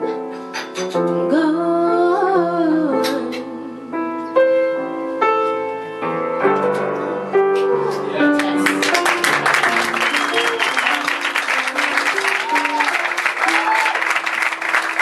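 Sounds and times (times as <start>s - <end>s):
piano chords: 0.0s - 15.0s
woman singing: 1.2s - 4.0s.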